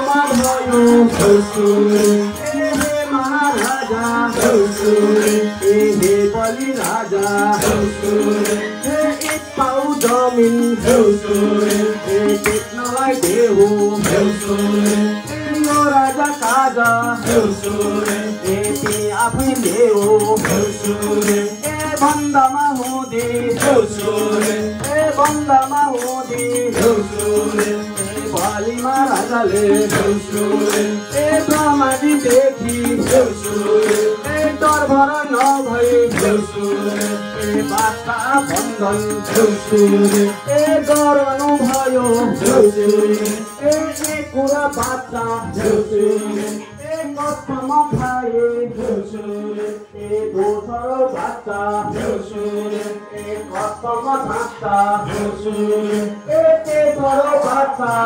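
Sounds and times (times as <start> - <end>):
group singing folk song: 0.0 - 58.0
rattling percussion: 0.0 - 58.0.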